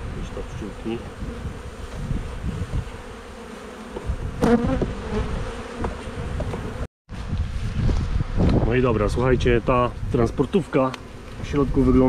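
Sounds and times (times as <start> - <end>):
honeybees buzzing: 0.0 - 6.9.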